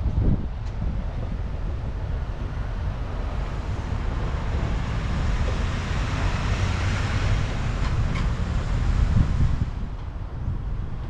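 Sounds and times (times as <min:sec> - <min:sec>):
wind rumbling on microphone: 0:00.0 - 0:11.0
tyre hiss of traffic: 0:00.8 - 0:11.0
car passing: 0:01.3 - 0:10.0.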